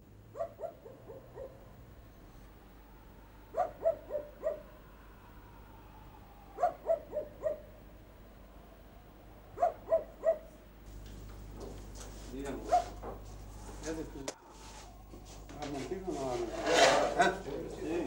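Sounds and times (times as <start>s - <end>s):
dog barking: 0.3s - 1.7s, 3.5s - 4.7s, 6.5s - 7.7s, 9.5s - 10.6s, 12.6s - 13.0s.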